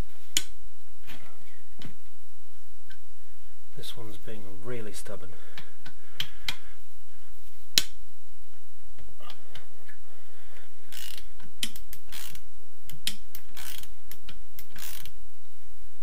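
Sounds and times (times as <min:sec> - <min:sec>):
ratchet pawl rasping: 0:10.9 - 0:12.4, 0:13.4 - 0:13.9, 0:14.6 - 0:15.1
ratchet wrench click: 0:10.9 - 0:15.1.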